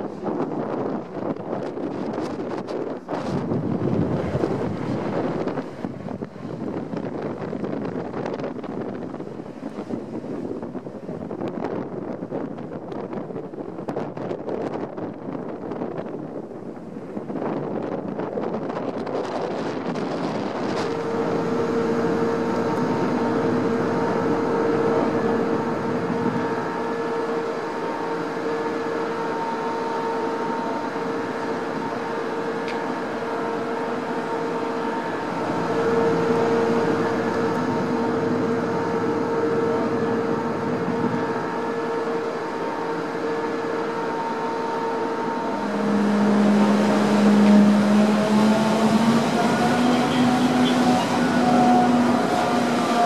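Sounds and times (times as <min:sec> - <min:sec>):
ship engines humming: 0:00.0 - 0:13.9, 0:15.0 - 0:53.0
wind noise: 0:00.0 - 0:53.0
deep machinery tone: 0:16.5 - 0:53.0.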